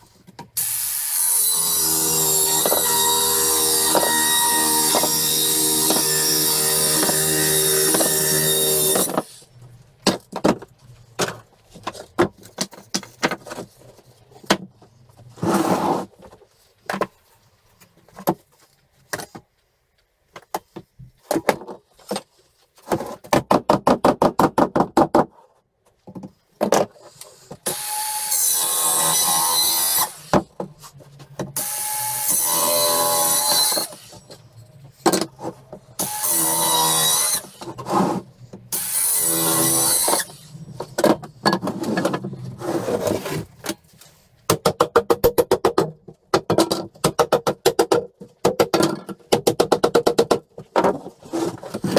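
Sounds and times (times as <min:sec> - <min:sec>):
power tool on wooden boards: 0:00.6 - 0:09.4, 0:27.6 - 0:30.4, 0:31.6 - 0:34.3, 0:36.0 - 0:41.1.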